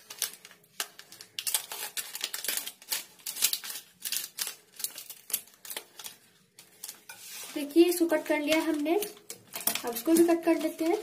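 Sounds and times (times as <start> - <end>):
packet crinkling: 0.0 - 11.0.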